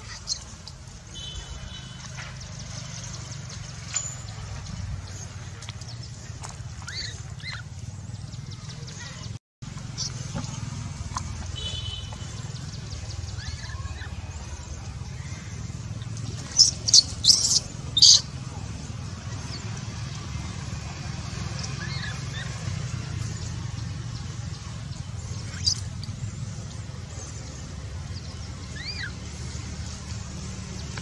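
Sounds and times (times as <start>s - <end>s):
baby monkey squeaks and cries: 6.8s - 7.7s, 13.2s - 14.5s, 16.0s - 18.4s, 21.6s - 22.6s, 25.2s - 26.2s, 28.6s - 29.3s.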